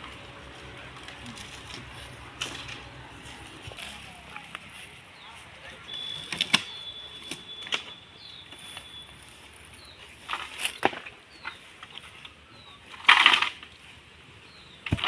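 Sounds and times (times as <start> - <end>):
footsteps in dry leaves: 0.0 - 7.6, 8.2 - 11.8
faint high chirps: 5.2 - 9.5.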